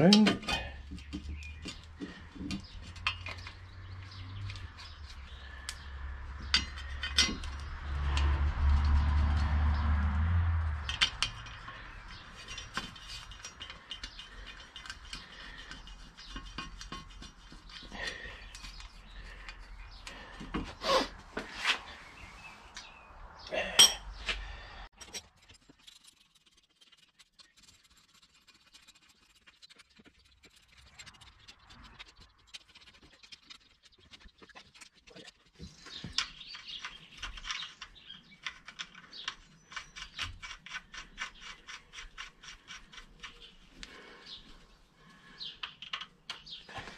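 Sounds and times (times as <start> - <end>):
metal tools clinking: 6.4 - 7.7.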